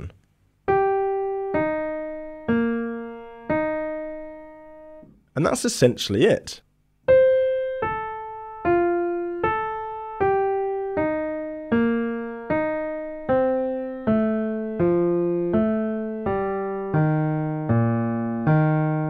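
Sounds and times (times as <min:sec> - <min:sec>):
piano playing slow notes: 0:00.7 - 0:05.1, 0:07.1 - 0:19.0.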